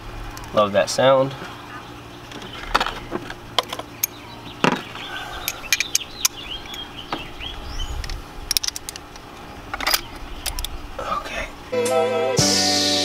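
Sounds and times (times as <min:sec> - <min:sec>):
hand tools clicking and knocking: 0:02.3 - 0:07.2, 0:08.0 - 0:09.0, 0:09.7 - 0:10.7
bird chirps: 0:03.8 - 0:08.1.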